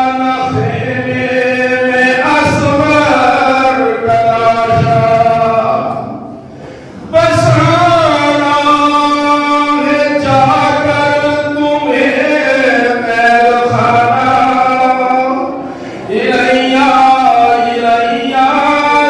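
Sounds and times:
man chanting into a microphone: 0:00.0 - 0:19.0.

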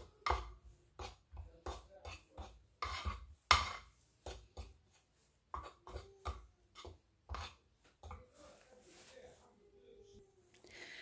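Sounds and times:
spoon scraping wooden bowl: 0:00.0 - 0:08.6.

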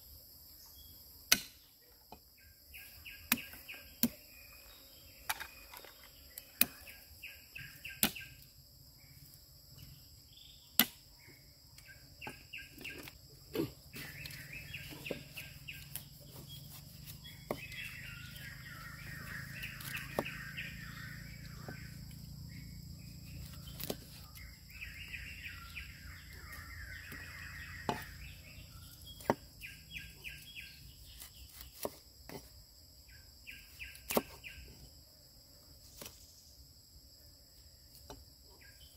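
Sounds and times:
insect drone: 0:00.0 - 0:38.9
birds chirping: 0:02.4 - 0:08.4, 0:09.1 - 0:31.9.

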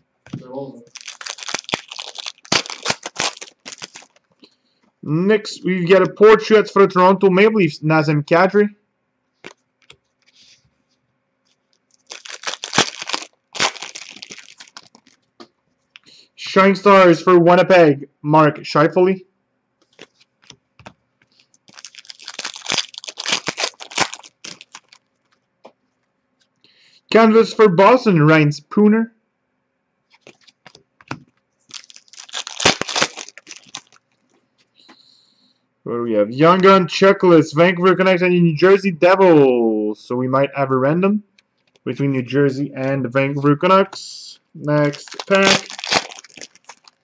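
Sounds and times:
trading cards rustling and flicking: 0:00.9 - 0:04.3, 0:11.5 - 0:15.3, 0:19.8 - 0:25.4, 0:30.1 - 0:34.3, 0:44.8 - 0:47.0.

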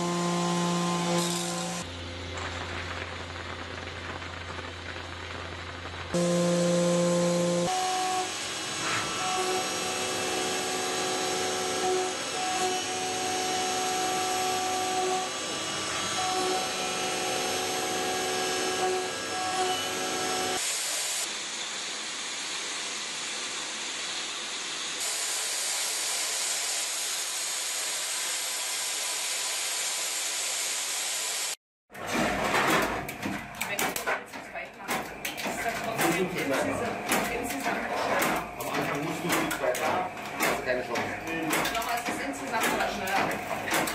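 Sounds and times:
milling machine cutting whine: 0:00.0 - 0:02.5, 0:06.2 - 0:25.0, 0:35.0 - 0:43.9.

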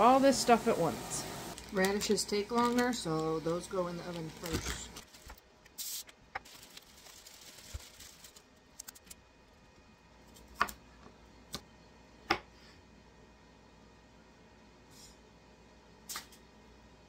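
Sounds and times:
plastic bag crinkling: 0:01.5 - 0:09.2.

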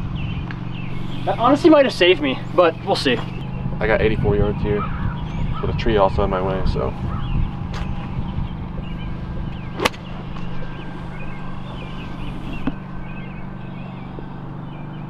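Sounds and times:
steady low hum: 0:00.0 - 0:15.0
golf club striking ball: 0:08.8 - 0:13.2.

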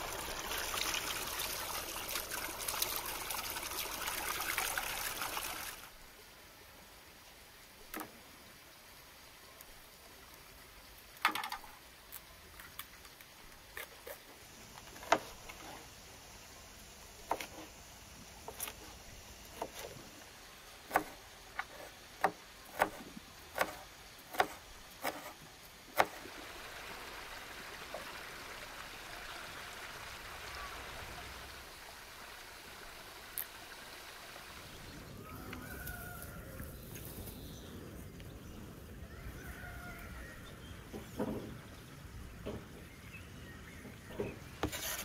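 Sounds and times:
steady outdoor hiss: 0:00.0 - 0:45.0
knife chopping on wooden board: 0:20.9 - 0:25.4, 0:26.0 - 0:26.2.

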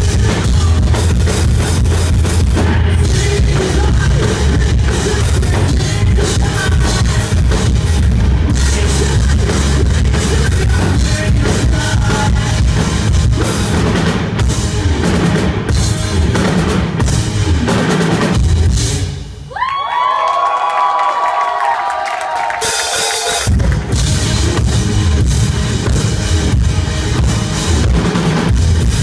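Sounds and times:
rock band playing live: 0:00.0 - 0:19.5, 0:22.4 - 0:29.0
loud drum kit: 0:00.0 - 0:19.7, 0:22.0 - 0:29.0.

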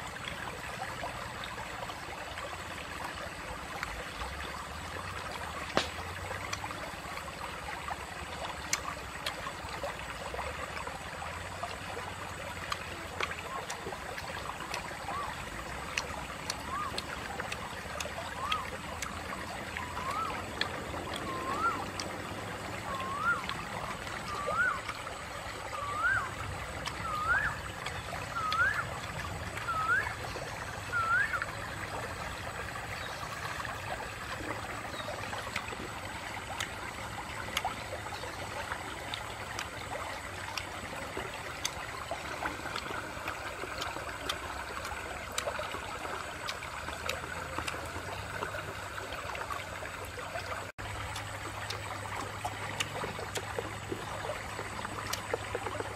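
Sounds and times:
stream trickling over stones: 0:00.0 - 0:55.9
short rising whistle: 0:21.3 - 0:21.9, 0:22.9 - 0:23.5, 0:24.3 - 0:24.8, 0:25.7 - 0:26.3, 0:27.0 - 0:27.6, 0:28.3 - 0:28.8, 0:29.6 - 0:30.3, 0:30.9 - 0:31.6.

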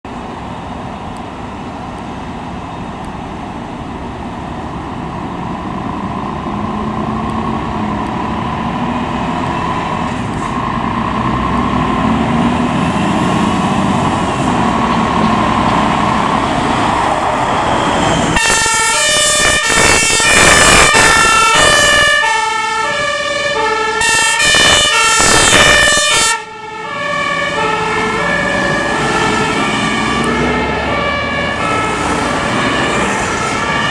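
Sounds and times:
fire truck diesel engines: 0:00.0 - 0:33.9
two-tone sirens: 0:00.5 - 0:33.9.

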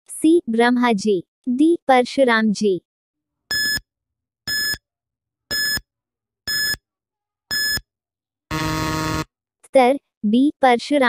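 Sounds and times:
short electronic beeps: 0:05.5 - 0:05.8, 0:06.5 - 0:06.8, 0:07.5 - 0:07.8
deep buzz tone: 0:08.5 - 0:09.3.

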